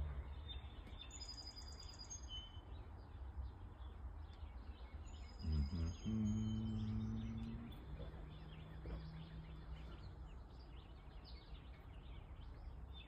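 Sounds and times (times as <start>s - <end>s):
songbirds chirping faintly: 0.0s - 13.0s
low steady hum: 2.6s - 13.0s.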